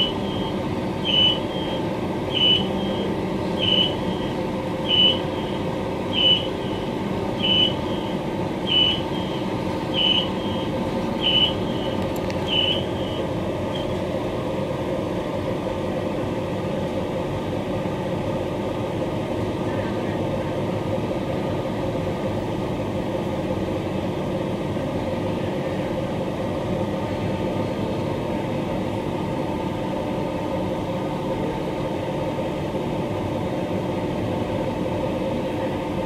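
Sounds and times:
short high electronic beeps: 0.0s - 13.9s
electric train equipment hum: 0.0s - 36.0s.

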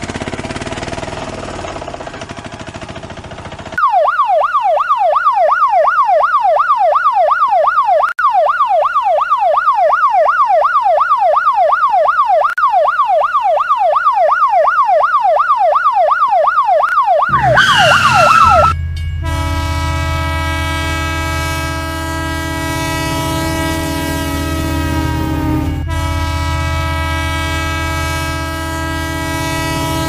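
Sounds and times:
ambulance siren wailing: 3.8s - 30.0s
low rumble: 17.3s - 30.0s
train horn: 17.3s - 30.0s.

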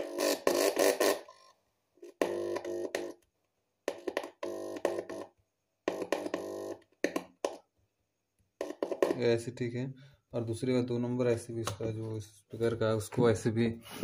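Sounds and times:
speaker buzzing: 0.0s - 1.3s, 2.1s - 3.2s, 3.9s - 7.6s, 8.6s - 9.2s.

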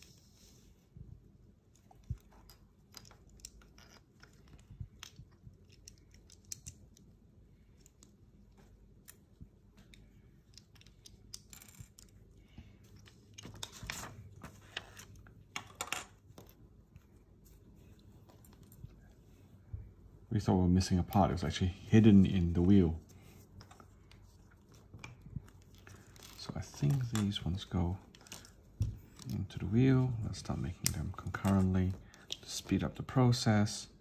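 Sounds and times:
plastic toy bricks clicking: 2.5s - 7.1s.

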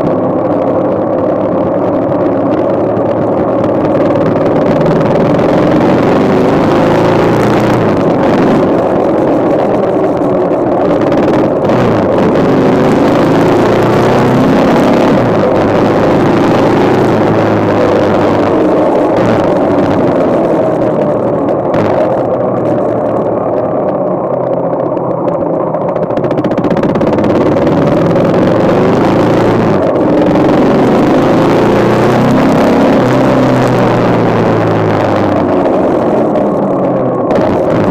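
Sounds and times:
motorcycle engine running: 0.0s - 37.9s
wind and road noise: 0.0s - 37.9s.

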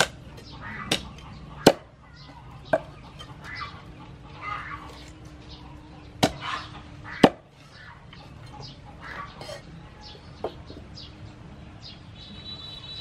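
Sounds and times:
birds chirping: 0.0s - 13.0s
cleaver chopping on wooden board: 0.8s - 1.9s, 6.2s - 6.4s.

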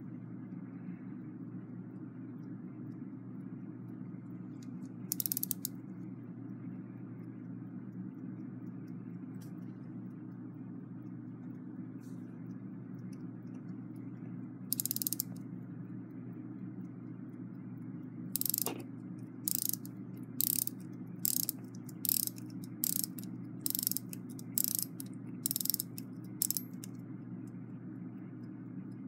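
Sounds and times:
steady low hum: 0.0s - 29.0s
alarm clock key winding clicks: 5.1s - 5.7s, 14.7s - 15.4s, 18.4s - 18.8s, 19.5s - 26.9s.

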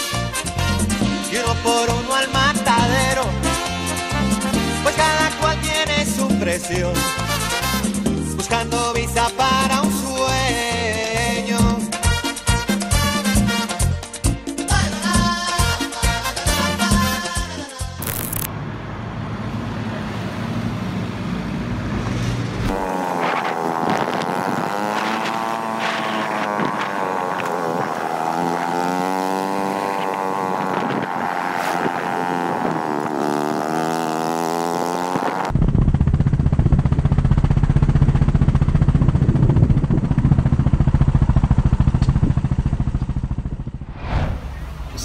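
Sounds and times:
small motorcycle engine running: 18.0s - 18.5s, 22.7s - 31.2s, 31.8s - 43.9s
loud low drone: 35.5s - 45.0s.

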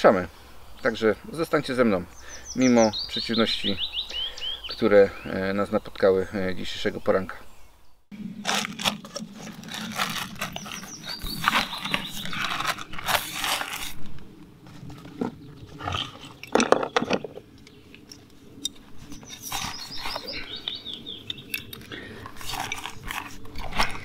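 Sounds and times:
fabric bag rustling: 8.4s - 16.4s.

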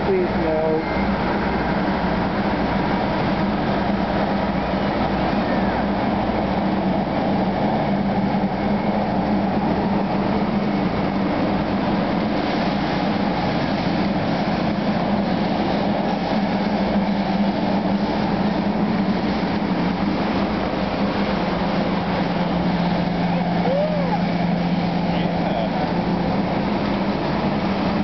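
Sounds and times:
train wheels rumbling on rails: 0.0s - 28.0s
low hum: 0.8s - 28.0s.

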